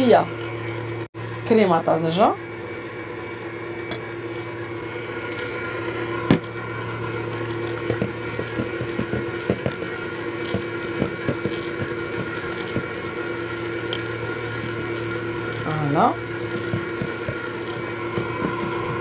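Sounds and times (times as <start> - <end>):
stand mixer humming: 0.0 - 19.0
whisk scraping glass bowl: 6.9 - 19.0.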